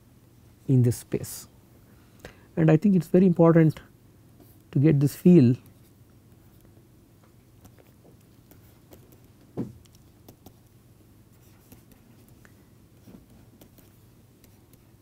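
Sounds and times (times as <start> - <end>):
low steady hum: 0.0 - 15.0
stylus tapping on tablet: 7.6 - 10.7
soft thump: 9.6 - 9.8.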